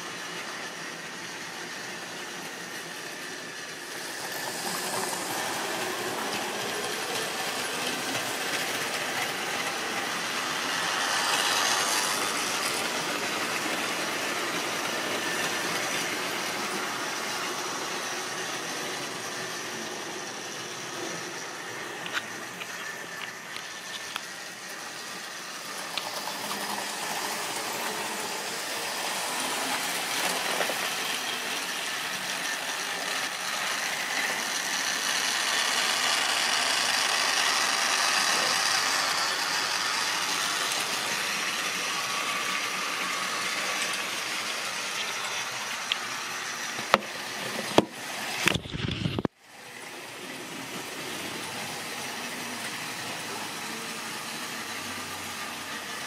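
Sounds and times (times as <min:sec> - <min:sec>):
model train motor whirring: 0:00.0 - 0:56.0.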